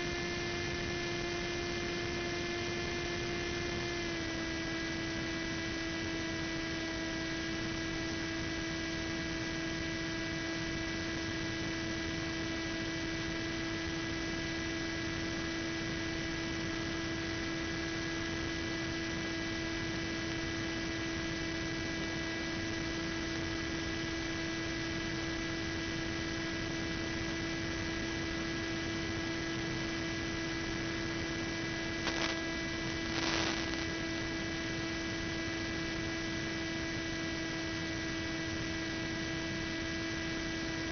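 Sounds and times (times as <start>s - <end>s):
electrical hum and hiss: 0.0s - 40.9s
brief crackles: 32.0s - 33.9s
constant electronic tones: 32.0s - 33.9s.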